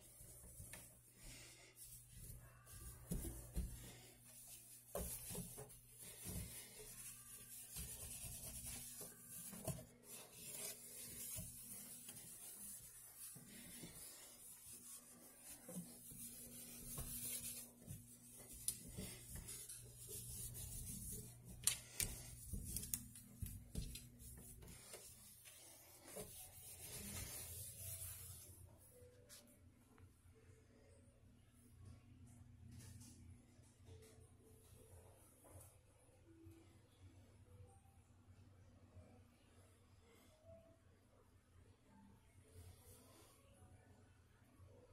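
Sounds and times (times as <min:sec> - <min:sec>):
cloth wiping a steel sink: 0:00.0 - 0:28.6.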